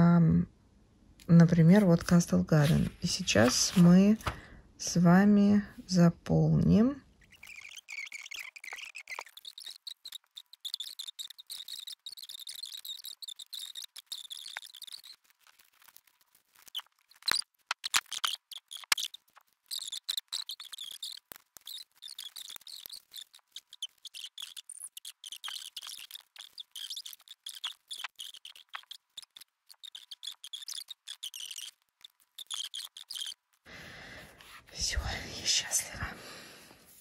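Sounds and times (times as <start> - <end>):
pen scratching on paper: 2.6 - 4.0, 7.3 - 16.0, 16.6 - 33.3, 34.2 - 35.2.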